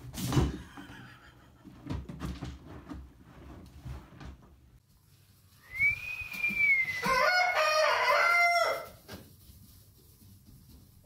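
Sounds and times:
rooster crowing: 0:06.6 - 0:09.0.

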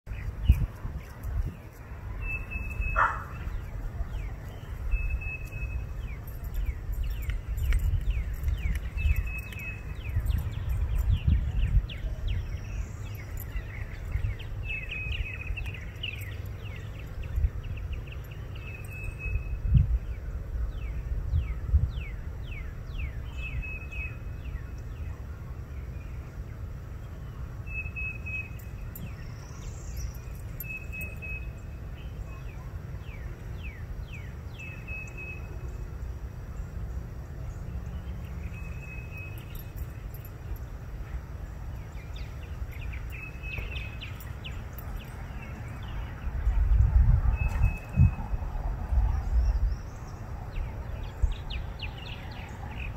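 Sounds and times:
small birds calling: 0:00.1 - 0:19.4, 0:41.5 - 0:48.1.

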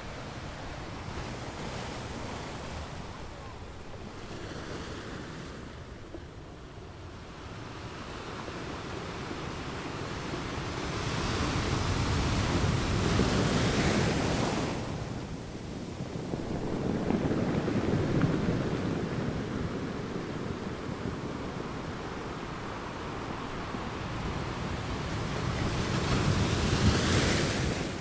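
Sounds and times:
muffled rushing water underwater: 0:15.0 - 0:24.8.

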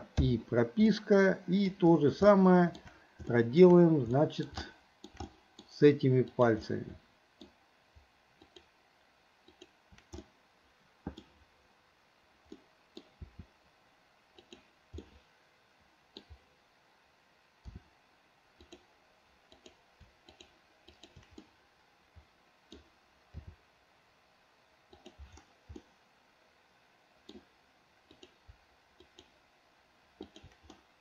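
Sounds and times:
mouse and keyboard clicks: 0:04.1 - 0:05.7, 0:14.4 - 0:15.2, 0:19.5 - 0:21.5, 0:30.2 - 0:30.8.

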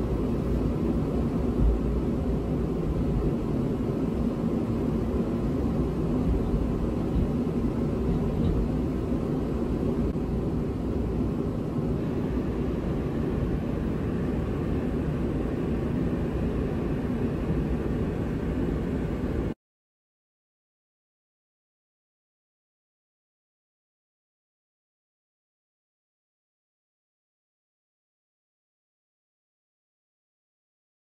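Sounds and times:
faint steady hum: 0:00.0 - 0:19.6.

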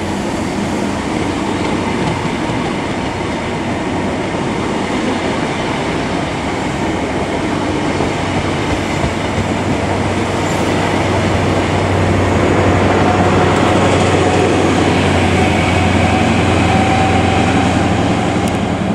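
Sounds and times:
train wheels clicking over rail joints: 0:01.2 - 0:03.2, 0:07.4 - 0:14.8.

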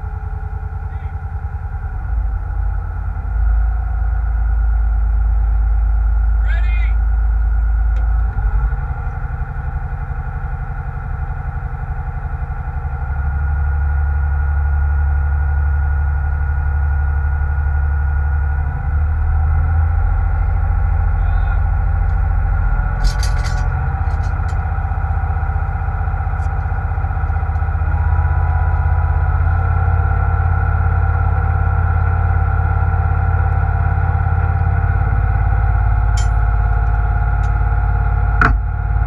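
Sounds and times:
boat engine droning: 0:00.0 - 0:39.0
high engine whine: 0:00.0 - 0:39.0
metal clanks: 0:22.9 - 0:24.8, 0:36.1 - 0:37.6.

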